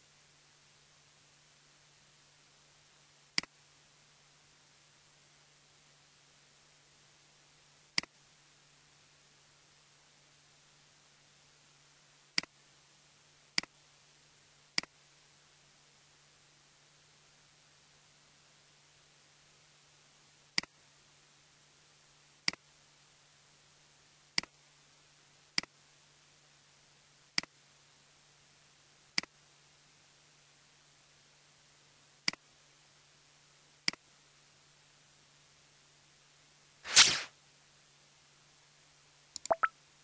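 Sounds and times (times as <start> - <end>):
faint steady hum: 0.0 - 36.8
burst of noise: 36.9 - 37.3
computer mouse clicking: 39.4 - 39.7.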